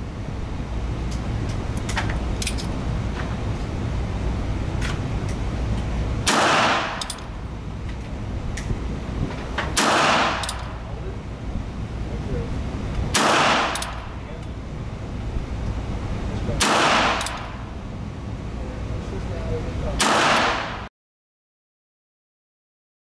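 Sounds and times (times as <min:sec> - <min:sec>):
revolver gunshots with echo: 0:06.2 - 0:07.3, 0:09.7 - 0:10.9, 0:13.1 - 0:14.2, 0:16.6 - 0:17.7, 0:20.0 - 0:20.9.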